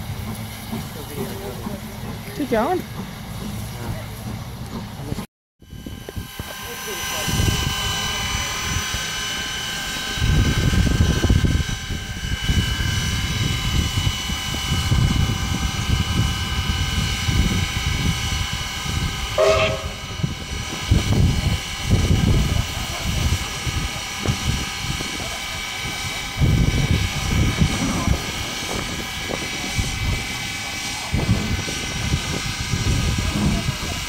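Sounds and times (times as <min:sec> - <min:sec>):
steam hissing with whistling tones: 0:05.6 - 0:34.0
brief high-pitched sound: 0:19.4 - 0:20.2.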